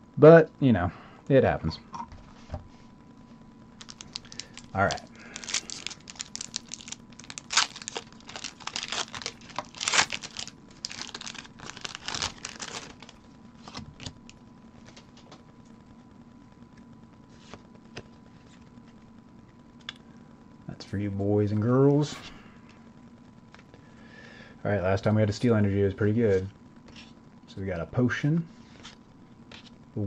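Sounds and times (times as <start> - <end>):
foil wrapper tearing and crinkling: 3.8 - 15.0.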